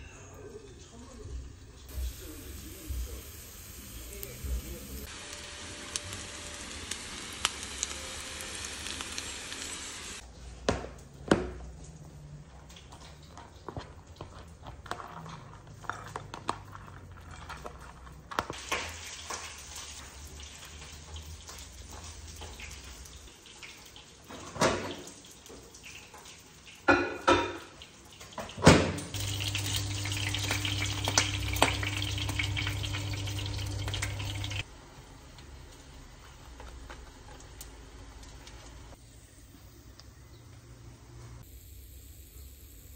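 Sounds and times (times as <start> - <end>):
kitchen tap running: 1.9 - 10.2, 18.4 - 34.7.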